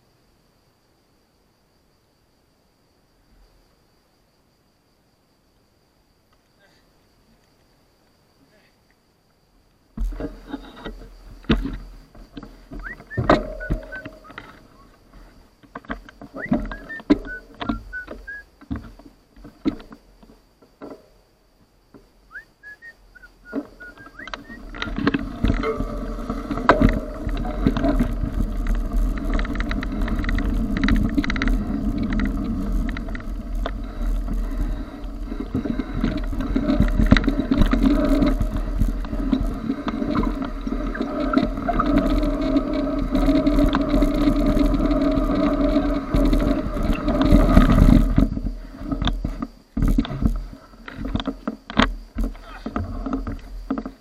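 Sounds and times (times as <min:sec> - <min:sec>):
tyres rumbling on dirt trail: 0:09.8 - 0:54.0
bike knocks and rattles: 0:09.9 - 0:21.3, 0:23.5 - 0:54.0
bike clattering: 0:10.0 - 0:21.2, 0:23.5 - 0:54.0.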